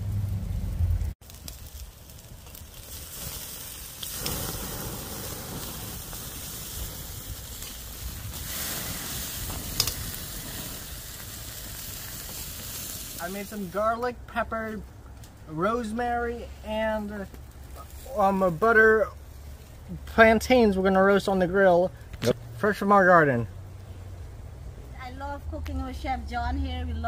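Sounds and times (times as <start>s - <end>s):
low rumble: 0.0s - 1.2s
meat sizzling on a grill: 1.0s - 14.7s, 15.4s - 22.1s.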